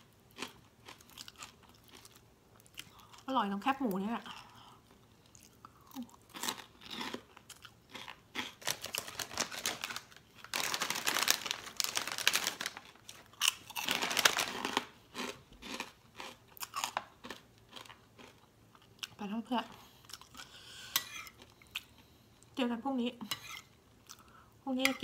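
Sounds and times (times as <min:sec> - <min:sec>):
person chewing crunchy snack: 0:00.3 - 0:03.3, 0:04.3 - 0:19.2, 0:19.8 - 0:22.1
plastic snack bag rustling: 0:08.4 - 0:17.1.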